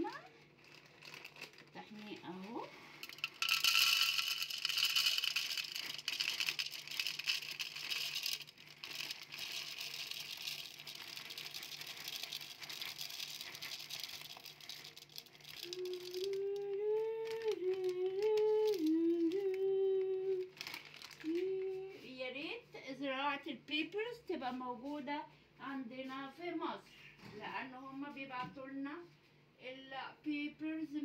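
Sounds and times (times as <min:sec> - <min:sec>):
peppercorns rattling: 0:00.0 - 0:21.7
woman humming a tune: 0:15.6 - 0:20.5, 0:21.2 - 0:22.1.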